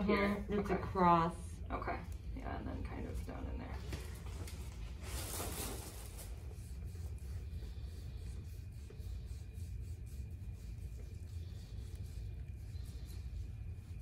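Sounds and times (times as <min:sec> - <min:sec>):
low room hum: 0:00.0 - 0:14.0
applicator scrubbing skin: 0:06.3 - 0:14.0.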